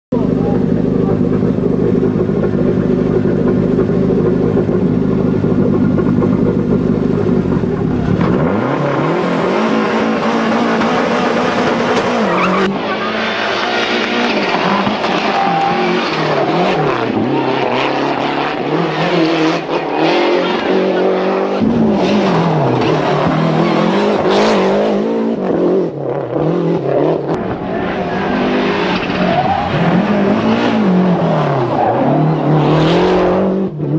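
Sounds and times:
rally car engine revving: 0:00.1 - 0:33.9.

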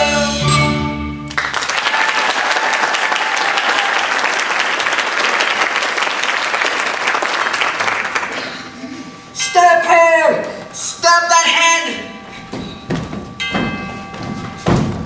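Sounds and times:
audience applauding: 0:01.3 - 0:08.8.

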